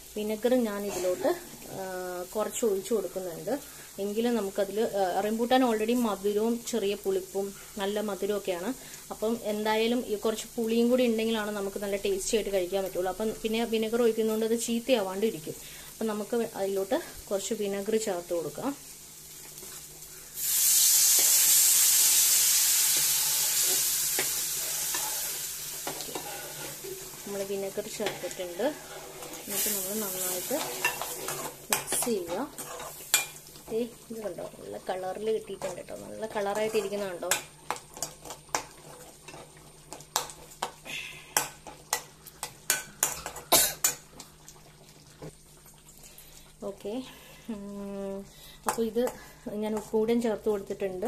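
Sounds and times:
faint steady hum: 0.0 - 51.0
loud sizzling in a pan: 0.0 - 51.0
metal spoon scraping pan: 22.9 - 27.0, 27.9 - 33.4.

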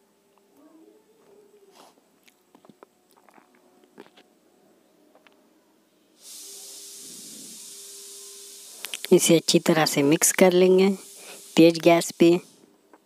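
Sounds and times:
steady cooking hiss: 6.0 - 13.0.

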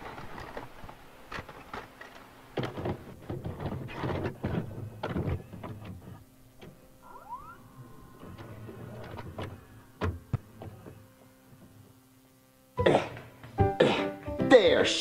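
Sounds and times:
tape mechanism clunks and clicks: 0.0 - 7.5
short rising whine: 6.9 - 11.2.

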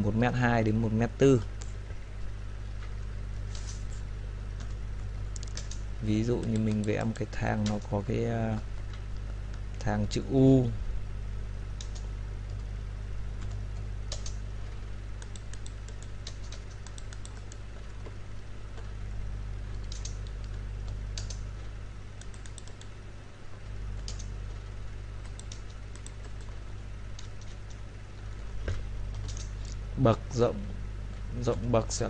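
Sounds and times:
steady low hum: 0.0 - 32.0
keyboard typing: 5.4 - 5.8, 6.4 - 7.8, 11.8 - 12.7, 13.4 - 14.4, 15.2 - 18.1, 19.7 - 21.4, 22.2 - 22.9, 24.0 - 24.3, 25.2 - 27.8, 29.1 - 29.7.

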